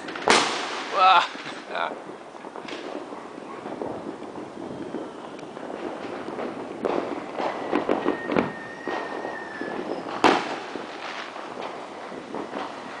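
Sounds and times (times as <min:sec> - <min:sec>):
fireworks crackling pops: 0:00.0 - 0:13.0
loud firework bang: 0:00.0 - 0:13.0
high firework whistle: 0:04.6 - 0:11.3.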